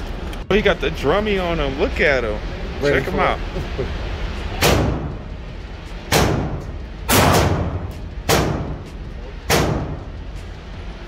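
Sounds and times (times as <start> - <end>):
pistol shots echoing indoors: 4.6 - 5.1, 6.1 - 8.9, 9.5 - 10.1.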